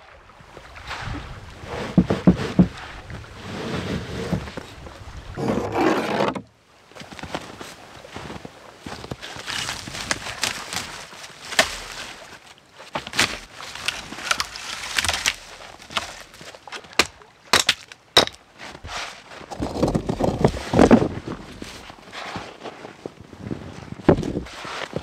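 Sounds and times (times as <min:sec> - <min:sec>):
branch dragged through brush: 0:00.9 - 0:04.7
flat stones scraping: 0:05.4 - 0:06.4, 0:13.2 - 0:21.2
dry branches snapping and crackling: 0:09.2 - 0:12.2, 0:13.0 - 0:18.4.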